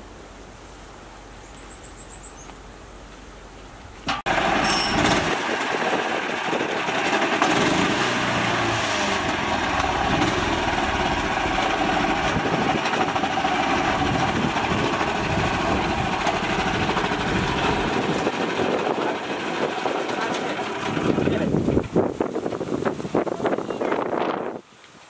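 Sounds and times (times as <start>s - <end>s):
small tractor engine running: 4.1s - 22.0s.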